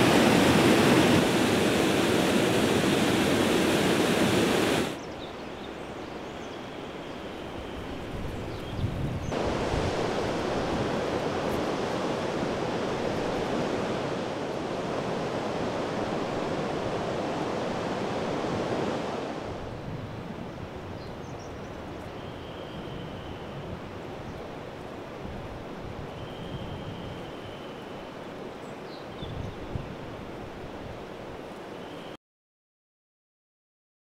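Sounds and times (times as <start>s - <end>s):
river water rushing over weir: 0.0s - 5.0s, 9.3s - 19.6s.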